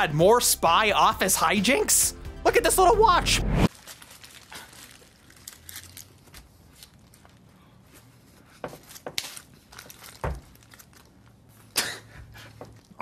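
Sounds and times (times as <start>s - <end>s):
paper wrapper crinkling: 3.7s - 11.8s.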